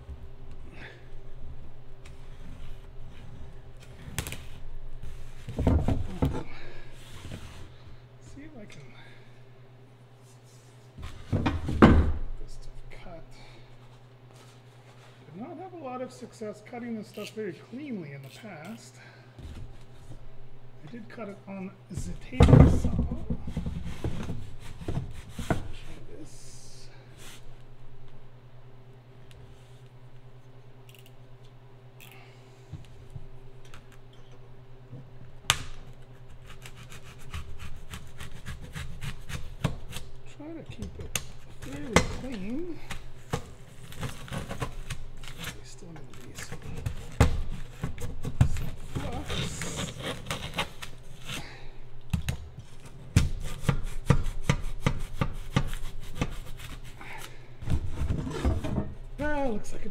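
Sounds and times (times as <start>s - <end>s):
knife scratching foam board: 36.2s - 40.1s, 46.9s - 51.4s, 53.2s - 57.0s.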